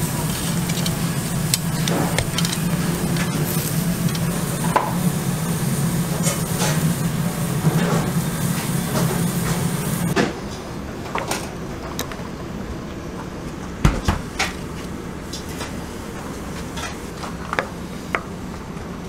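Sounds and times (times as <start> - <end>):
sausages sizzling on a grill: 0.0 - 10.2.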